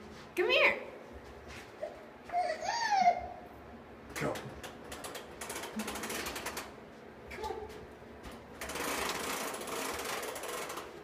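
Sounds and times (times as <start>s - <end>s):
toy walker rattling on carpet: 4.2s - 6.8s, 8.6s - 11.0s.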